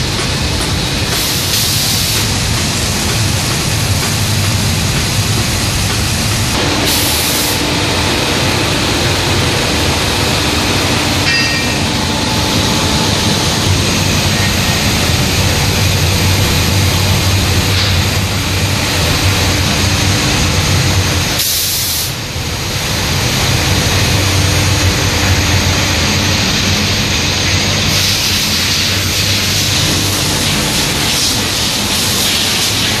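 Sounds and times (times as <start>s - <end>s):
loud rush of air: 4.3s - 33.0s.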